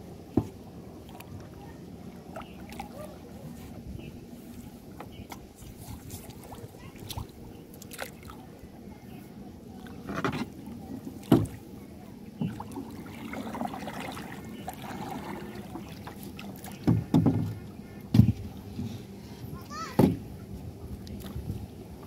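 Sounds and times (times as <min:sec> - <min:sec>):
water sloshing around boat: 0:00.0 - 0:22.0
sharp knocks on boat: 0:00.3 - 0:00.6, 0:09.9 - 0:10.5, 0:11.2 - 0:11.6, 0:12.4 - 0:12.8, 0:15.0 - 0:19.0, 0:19.7 - 0:20.3.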